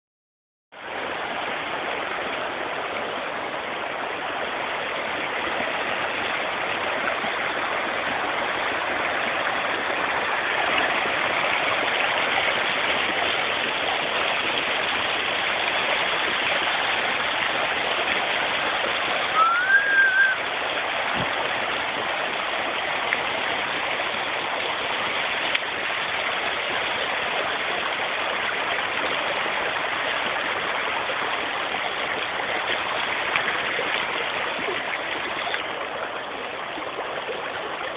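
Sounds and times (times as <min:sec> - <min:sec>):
short high rising tone: 0:19.4 - 0:20.4.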